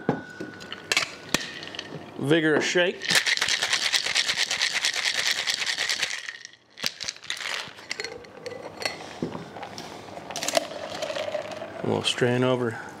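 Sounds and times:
ice rattling in cocktail shaker: 1.4s - 1.9s, 3.0s - 8.6s, 10.3s - 12.0s.

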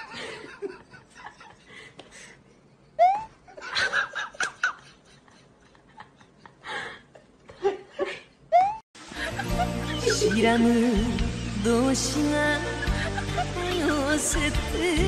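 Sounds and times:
person laughing: 0.0s - 2.3s, 2.9s - 10.8s, 12.6s - 14.2s.

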